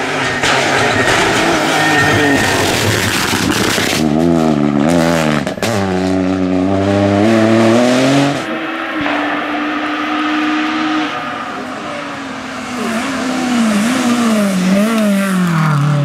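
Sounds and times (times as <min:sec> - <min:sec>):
rally car engine revving: 0:00.0 - 0:16.0
tyres passing at speed: 0:07.3 - 0:16.0.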